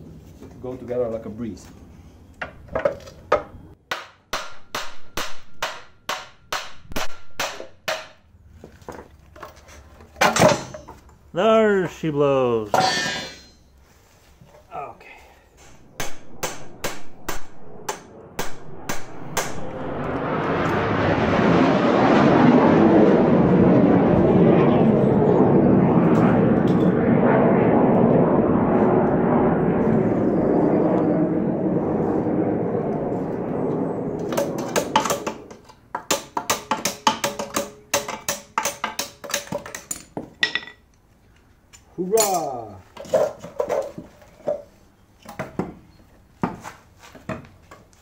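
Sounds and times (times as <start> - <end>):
loud rushing roar: 15.2 - 35.6.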